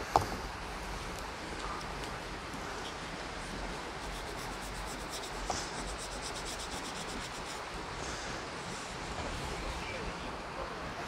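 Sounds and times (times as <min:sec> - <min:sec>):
foam pad wiping leaves: 0:01.8 - 0:10.1.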